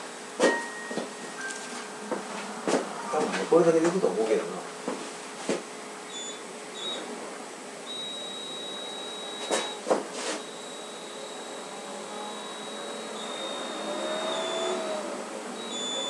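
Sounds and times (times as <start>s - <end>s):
electric blower running: 6.1s - 16.0s.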